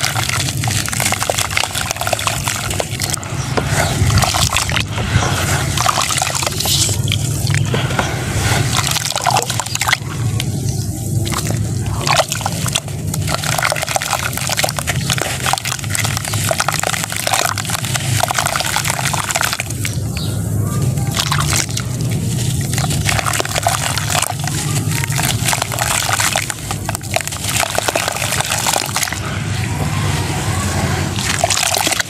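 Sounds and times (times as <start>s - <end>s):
water splashing and squelching: 0.0s - 32.0s
blocks crumbling and crunching: 11.2s - 19.9s, 21.1s - 29.2s.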